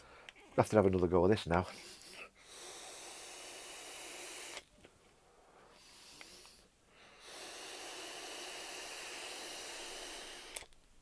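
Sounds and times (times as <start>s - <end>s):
electronic cigarette draw hiss: 1.6s - 4.8s, 5.6s - 10.8s
breathy exhale: 1.7s - 4.7s, 5.3s - 10.7s.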